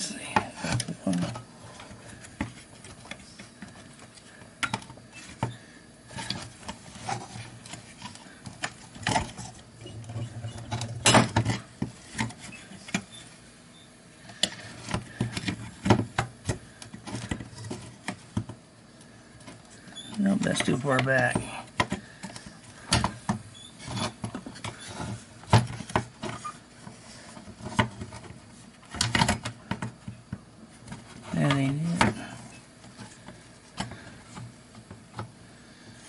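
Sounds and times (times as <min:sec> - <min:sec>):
clicks and rattles of plastic parts: 0:06.1 - 0:13.2, 0:19.4 - 0:35.3.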